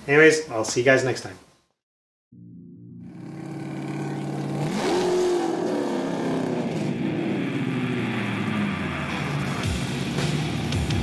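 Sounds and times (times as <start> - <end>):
car engine revving: 3.0 - 10.6.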